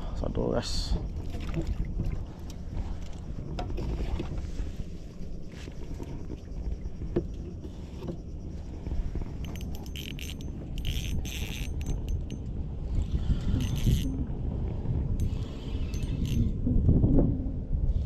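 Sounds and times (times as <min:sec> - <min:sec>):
wind rumbling on microphone: 0:00.0 - 0:18.0
fishing reel whirring and clicking: 0:09.1 - 0:14.2, 0:15.1 - 0:16.7.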